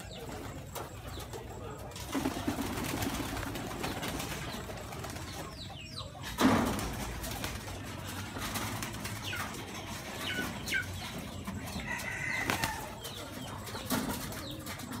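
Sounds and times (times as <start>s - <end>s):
pigeon wings flapping: 2.0s - 5.4s.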